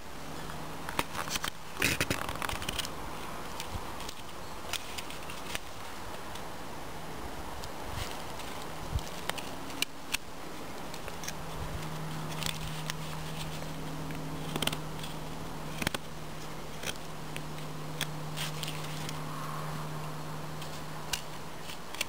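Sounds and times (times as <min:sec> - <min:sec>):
knife carving wood: 0:00.4 - 0:06.5, 0:07.6 - 0:19.6, 0:20.5 - 0:22.0.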